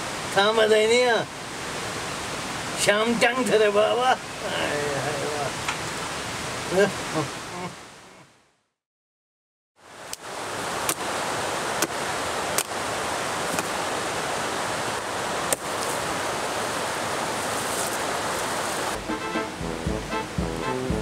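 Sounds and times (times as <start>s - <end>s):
steady rushing noise: 10.3s - 21.0s
axe chopping tree branches: 10.8s - 11.0s, 13.5s - 13.8s, 15.5s - 15.8s.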